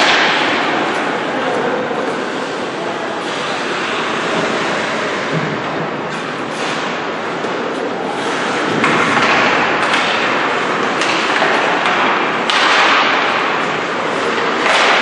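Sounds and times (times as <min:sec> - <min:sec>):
thuds of sticks and puck: 0:08.6 - 0:15.0.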